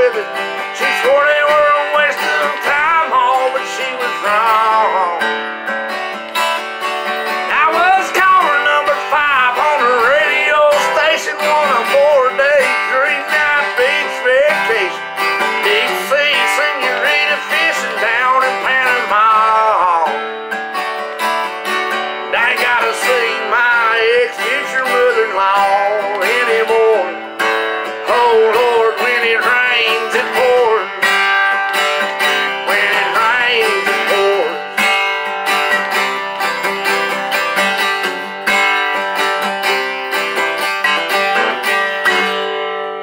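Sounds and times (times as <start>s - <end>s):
man singing: 0.0s - 5.5s, 7.4s - 20.4s, 22.2s - 35.3s
acoustic guitar strumming: 0.0s - 43.0s.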